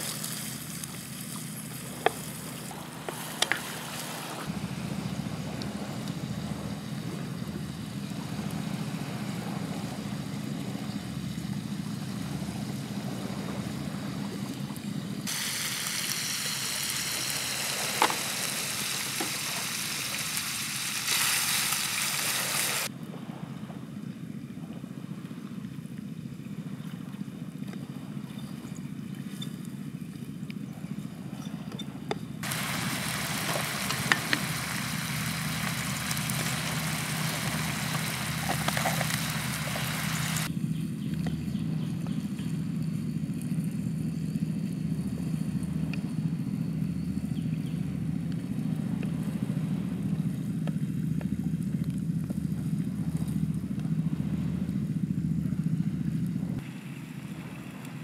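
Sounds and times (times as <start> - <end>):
steady low rumble: 0.0 - 58.0
food frying in oil: 15.3 - 22.9, 32.4 - 40.5.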